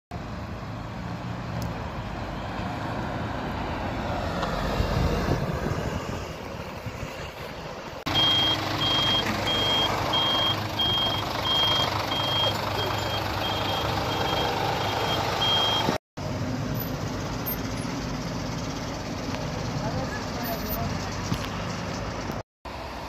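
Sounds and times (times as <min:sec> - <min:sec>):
traffic hum: 0:00.1 - 0:23.0
diesel engine running: 0:05.9 - 0:22.4
reversing alarm beeping: 0:08.1 - 0:16.0.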